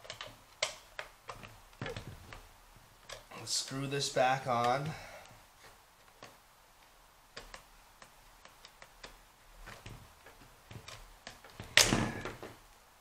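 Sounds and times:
screwdriver clicking on screw: 0:06.0 - 0:11.8.

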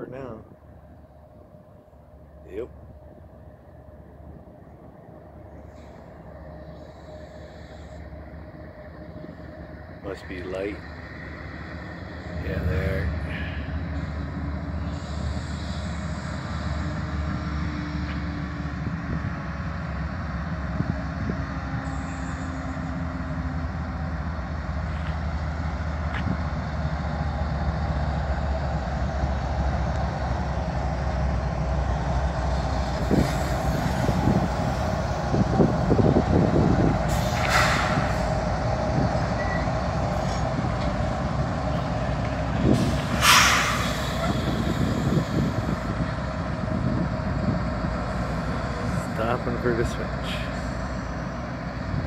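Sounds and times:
diesel locomotive engines rumbling: 0:00.0 - 0:52.0
air hiss: 0:42.7 - 0:45.8.

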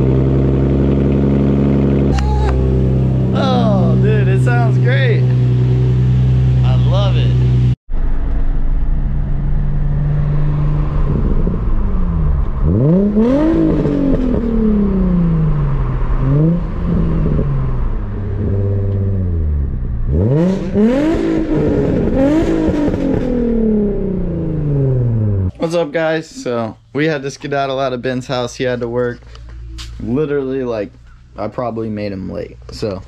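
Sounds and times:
car engine revving: 0:00.0 - 0:25.5.

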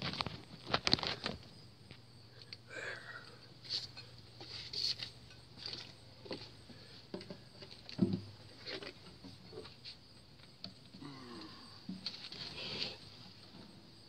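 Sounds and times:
handling rustles and knocks: 0:03.6 - 0:10.9.

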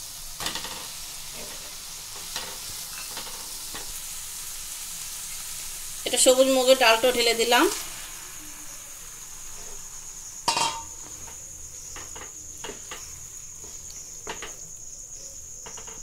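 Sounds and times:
metal bowl clanking on pan: 0:02.2 - 0:03.9, 0:10.5 - 0:14.6
wooden spatula scraping pan: 0:10.5 - 0:14.7.

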